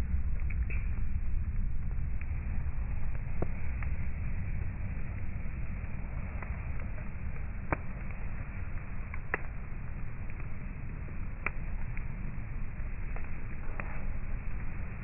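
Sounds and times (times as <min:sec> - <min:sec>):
steady low rumble: 0:00.0 - 0:15.0
wood fire crackling and popping: 0:00.0 - 0:15.0.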